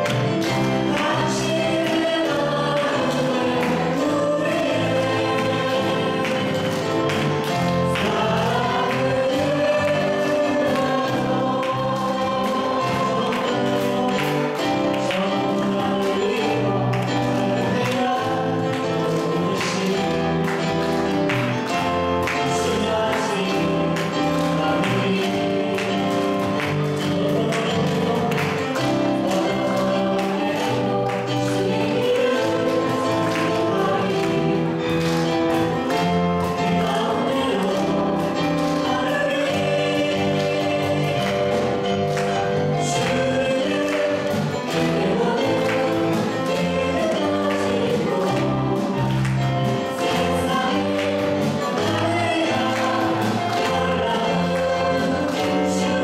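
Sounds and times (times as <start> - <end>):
man and women singing worship song: 0.0 - 21.0, 21.6 - 56.0
instrumental accompaniment: 0.0 - 56.0.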